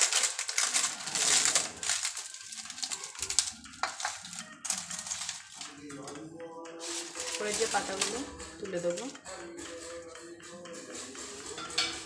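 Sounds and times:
dry leaves crackling and rustling: 0.0s - 5.7s, 6.8s - 8.2s.

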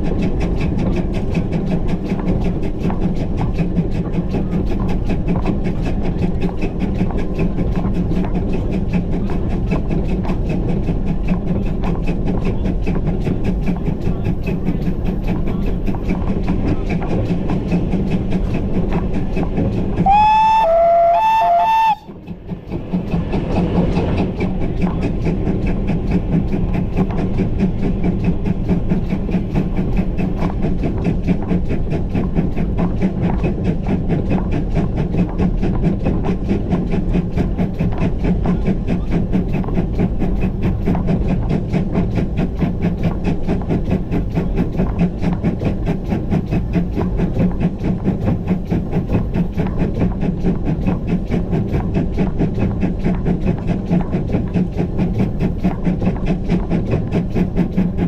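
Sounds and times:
rail clatter: 0.0s - 58.0s
steam locomotive exhaust beat: 0.0s - 58.0s
steam whistle blasts: 20.0s - 22.1s.

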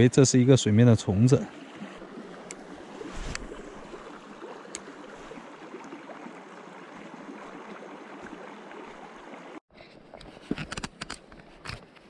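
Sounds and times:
stream water over rocks: 0.4s - 9.6s.

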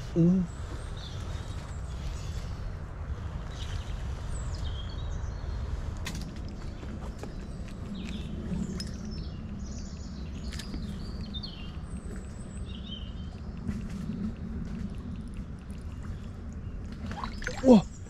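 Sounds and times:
songbirds chirping: 0.0s - 18.0s
stream water flowing: 11.7s - 18.0s.

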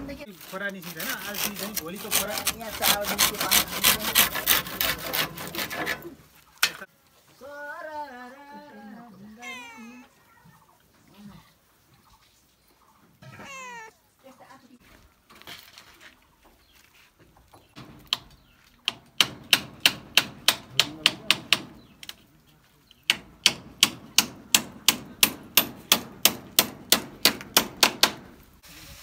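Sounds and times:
hammer blows on bamboo: 17.8s - 22.2s, 23.1s - 28.4s.

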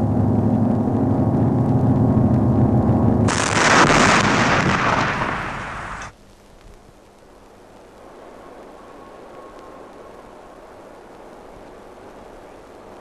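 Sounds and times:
low layered drone: 0.0s - 3.5s, 8.1s - 13.0s
harsh rushing noise burst: 1.8s - 6.1s.

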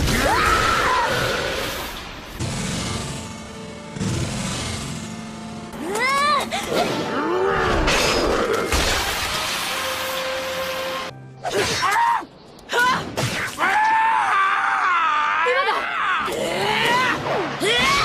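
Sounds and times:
crashing tearing noise: 7.7s - 9.9s.

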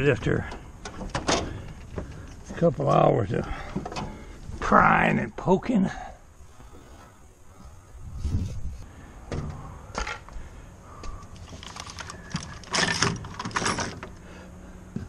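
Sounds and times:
rattling and scraping clatter: 11.4s - 14.2s.

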